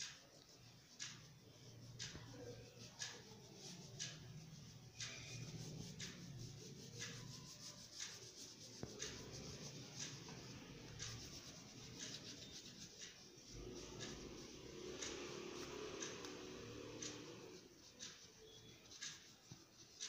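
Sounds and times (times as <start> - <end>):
crayon scratching on paper: 0.0 - 15.8.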